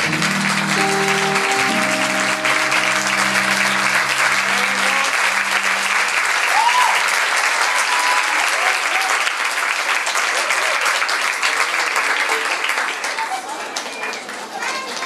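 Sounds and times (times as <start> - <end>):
music chord: 0.0 - 7.7
crowd whooping: 0.0 - 9.3
audience applauding and cheering: 0.0 - 15.0.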